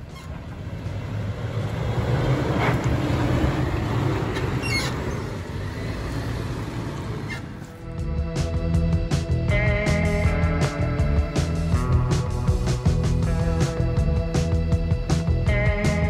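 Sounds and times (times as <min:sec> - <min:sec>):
vehicle engine driving over dirt: 0:00.0 - 0:13.8.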